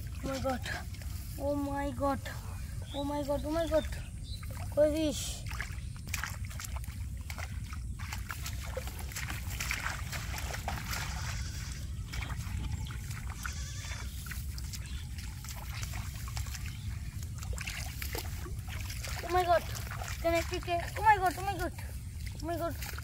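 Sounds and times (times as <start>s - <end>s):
splashing in shallow water: 0.0s - 23.0s
steady low rumble: 14.2s - 23.0s.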